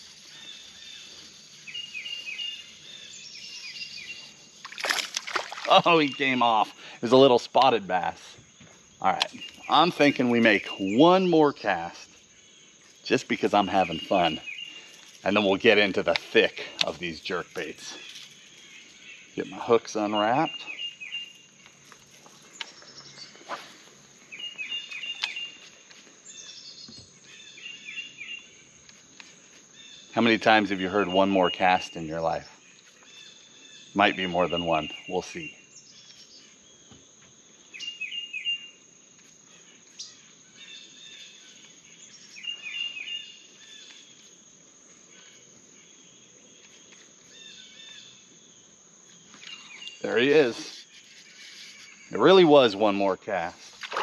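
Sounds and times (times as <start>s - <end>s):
high-pitched insect buzz: 0.0s - 6.4s, 49.0s - 52.2s
bird calling: 0.0s - 7.3s, 7.9s - 12.2s, 13.1s - 21.8s, 22.6s - 28.7s, 37.7s - 38.8s, 39.6s - 44.3s, 49.2s - 54.0s
high-pitched insect chorus: 0.0s - 54.0s.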